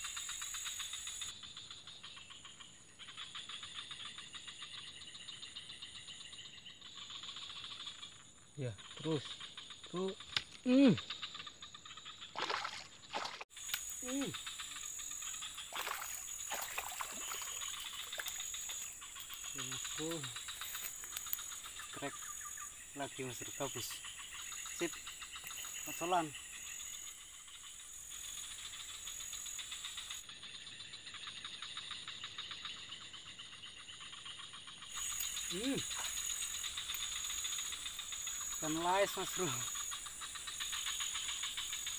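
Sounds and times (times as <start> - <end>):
insects chirring: 0.0 - 41.9
fish splashing at water surface: 12.4 - 13.5, 15.6 - 18.8.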